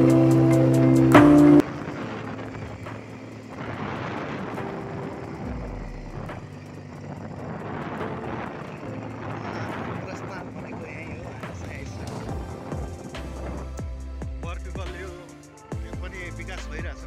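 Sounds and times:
wind and road noise: 0.0 - 14.2
motorcycle engine running: 0.0 - 15.1.

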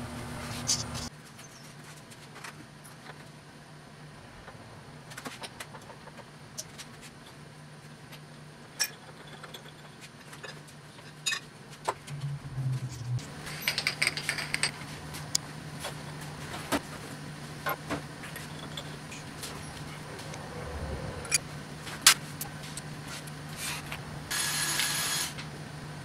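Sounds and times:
steady low machine hum: 11.9 - 24.3.

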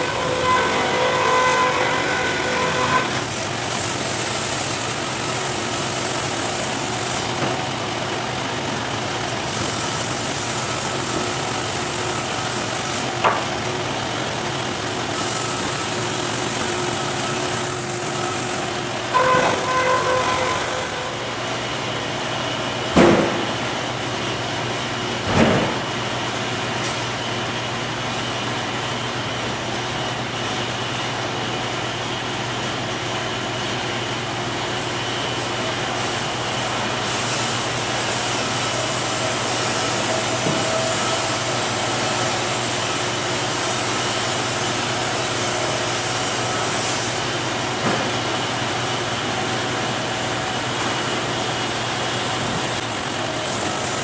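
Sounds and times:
bandsaw mill humming: 0.0 - 54.0.

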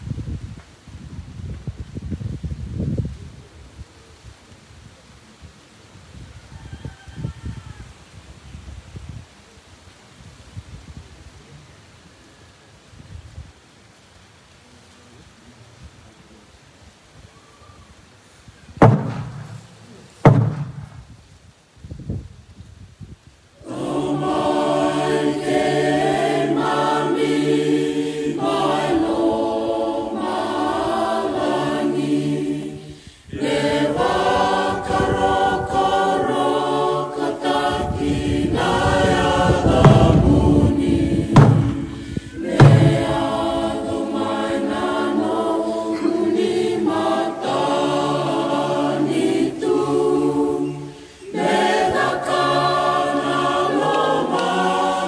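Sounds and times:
sharp knocks: 18.8 - 21.0, 39.8 - 40.3, 41.4 - 43.2
choir singing a hymn: 23.6 - 55.0
low rumbling: 37.8 - 43.9.

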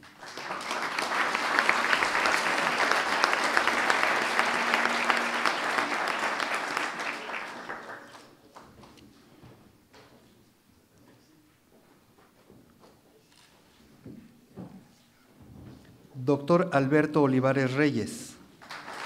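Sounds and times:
audience applauding: 0.0 - 8.7, 18.6 - 19.0.

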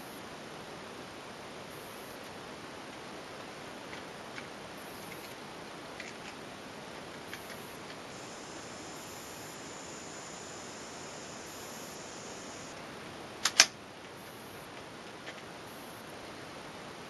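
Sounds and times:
faint high whine: 0.0 - 3.5, 4.6 - 13.4, 14.1 - 17.0
steady background hiss: 0.0 - 17.0
air rifle sharp clicks: 13.4 - 13.8.

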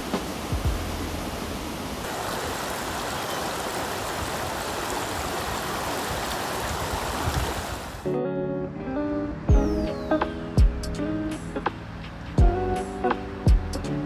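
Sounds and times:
stream rushing over rocks: 0.0 - 8.1.

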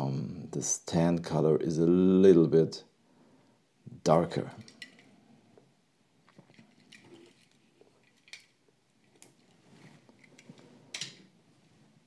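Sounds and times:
toy cars clicking and rubbing: 6.3 - 11.2.

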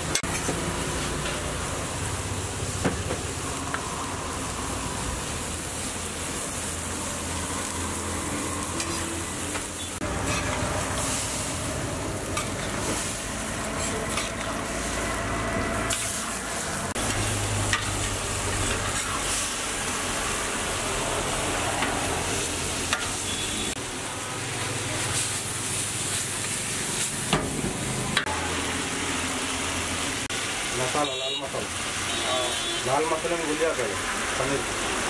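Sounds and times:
chicken sizzling in a wok: 0.0 - 35.0
metal spatula scraping pan: 8.7 - 11.4, 12.4 - 15.0, 17.0 - 19.5.

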